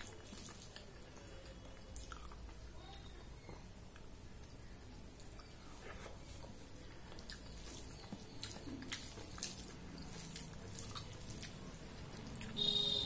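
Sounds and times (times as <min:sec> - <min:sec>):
fingers mixing food on steel plate: 0:05.4 - 0:12.6.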